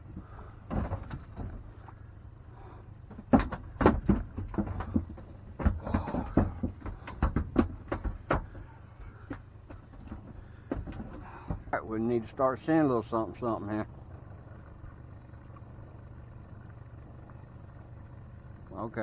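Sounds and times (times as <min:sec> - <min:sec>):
low steady rumble: 0:00.0 - 0:19.0
gear knocking and clattering: 0:03.1 - 0:11.8.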